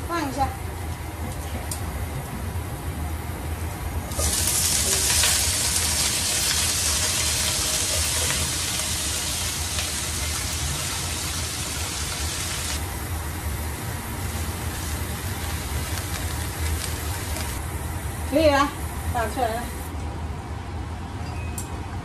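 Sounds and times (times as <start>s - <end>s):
cabbage sizzling in hot oil: 4.1s - 12.8s, 14.2s - 17.6s.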